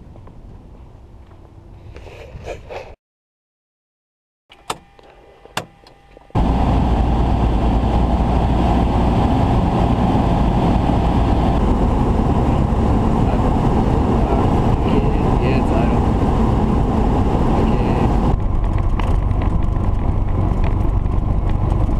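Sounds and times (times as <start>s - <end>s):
plane engine in cabin: 4.6s - 21.9s.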